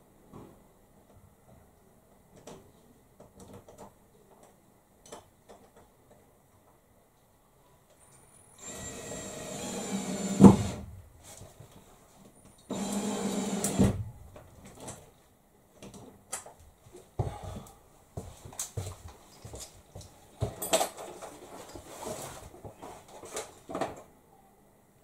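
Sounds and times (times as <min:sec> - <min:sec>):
cordless drill driving a screw: 0:08.6 - 0:10.8, 0:12.7 - 0:14.0.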